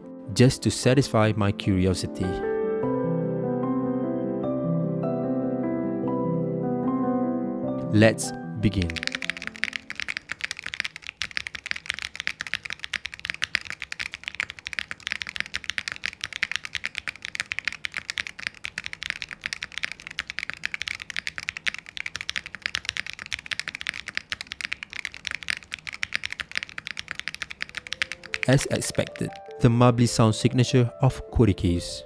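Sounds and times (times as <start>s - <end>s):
fast mechanical keyboard typing: 8.6s - 29.7s.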